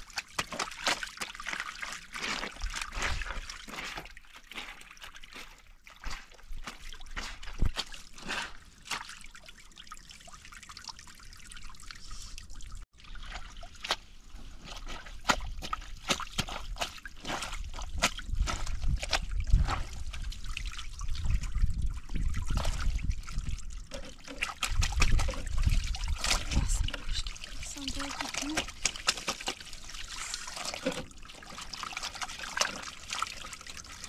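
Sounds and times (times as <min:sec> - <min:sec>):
water trickling and splashing: 0:00.0 - 0:34.0
quick drips and clicks: 0:08.8 - 0:14.0, 0:14.8 - 0:34.0.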